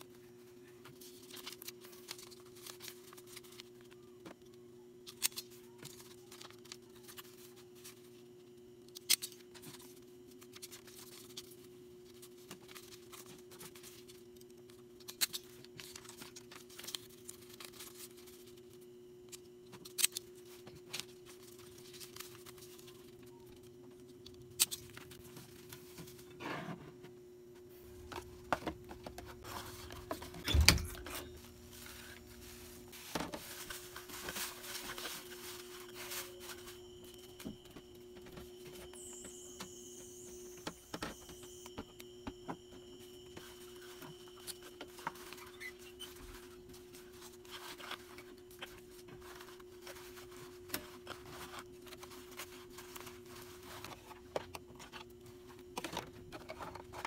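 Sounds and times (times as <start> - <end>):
steady low hum: 7.6 - 57.0
items clicking tapping and rustling: 28.0 - 32.1.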